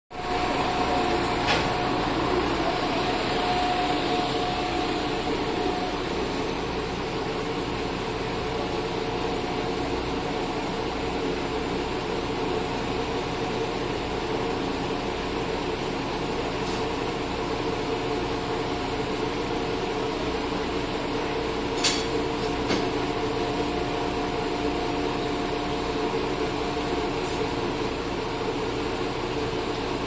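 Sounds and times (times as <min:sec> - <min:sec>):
diesel railcar idling: 0:00.1 - 0:21.7.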